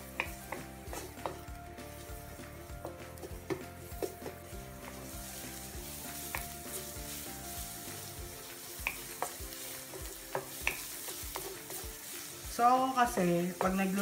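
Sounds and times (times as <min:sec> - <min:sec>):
garlic sizzling in oil: 0:00.0 - 0:14.0
wooden spatula scraping a pan: 0:00.0 - 0:14.0.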